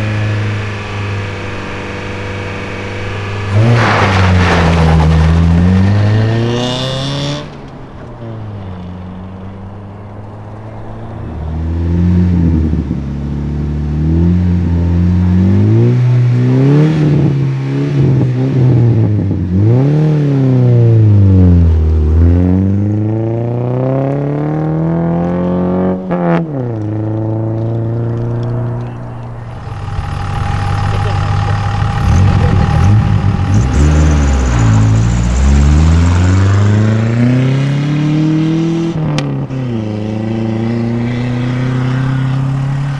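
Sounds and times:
car engine revving: 0:00.0 - 0:42.9
rally car engine accelerating: 0:00.0 - 0:42.9
steady high whine: 0:28.8 - 0:36.2.

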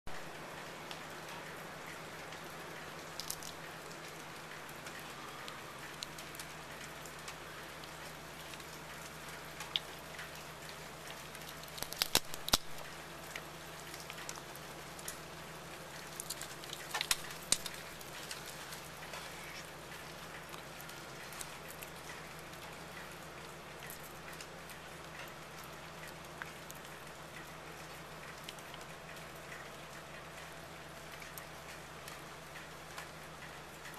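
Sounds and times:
squirrel cracking peanut shells: 0:03.0 - 0:04.3, 0:04.9 - 0:07.0, 0:07.9 - 0:23.1.

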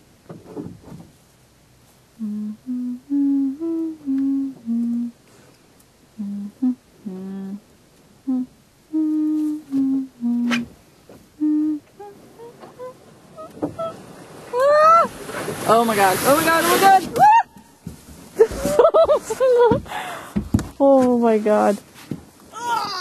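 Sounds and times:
person humming a tune: 0:02.2 - 0:05.2, 0:06.1 - 0:10.8, 0:11.4 - 0:14.0.

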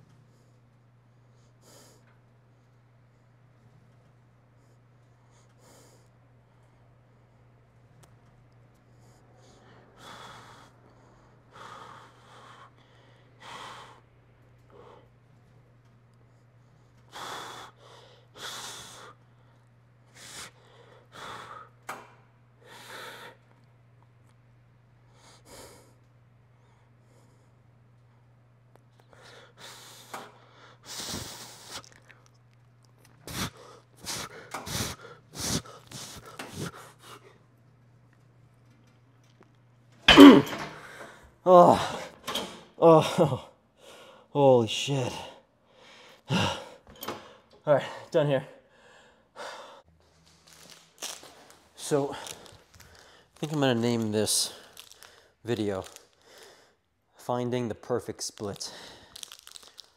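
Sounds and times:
steady low hum: 0:00.0 - 0:59.1
man breathing hard: 0:04.7 - 0:07.5, 0:08.8 - 0:15.2, 0:16.2 - 0:22.0, 0:22.6 - 0:23.6, 0:25.1 - 0:27.6, 0:29.0 - 0:32.0, 0:33.2 - 0:37.4, 0:40.4 - 0:49.9, 0:51.3 - 0:53.6, 0:54.4 - 0:56.9, 0:58.6 - 0:59.9.

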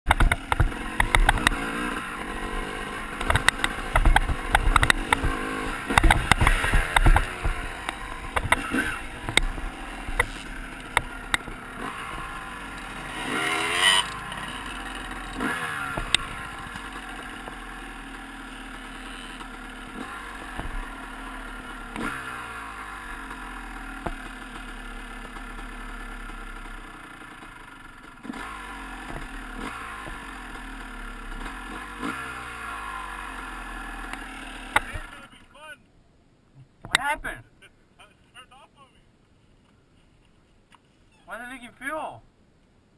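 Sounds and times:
rattling clicks over bumps: 0:00.1 - 0:02.4, 0:03.2 - 0:13.0, 0:19.4 - 0:20.9, 0:27.4 - 0:30.6
dirt bike engine running: 0:00.1 - 0:35.3.

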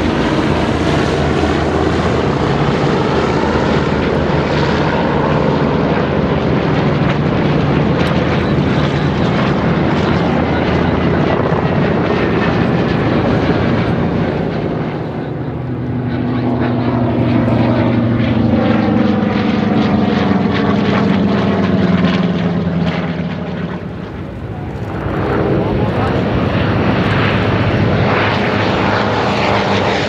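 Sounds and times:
propeller planes flying past: 0:00.0 - 0:30.0.

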